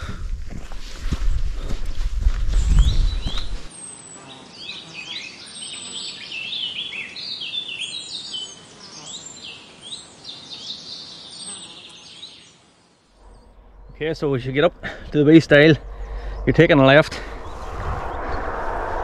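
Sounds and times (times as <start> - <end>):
low rumble of wind or handling: 0.0 - 3.7, 13.2 - 19.0
songbird singing: 1.9 - 19.0.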